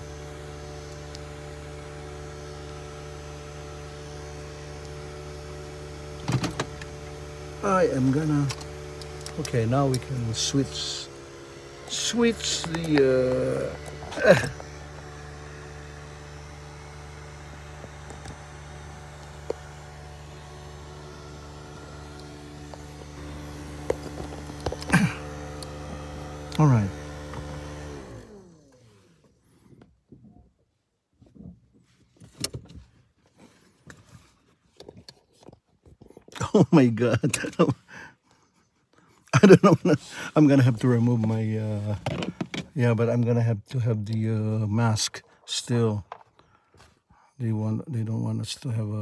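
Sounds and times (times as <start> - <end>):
car engine idling hum: 0.0 - 30.8, 36.4 - 49.0.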